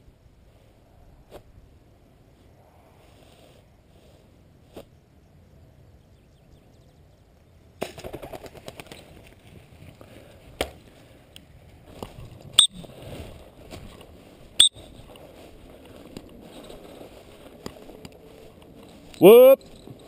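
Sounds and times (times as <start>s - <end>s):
pigeon wings flapping: 7.8s - 9.8s.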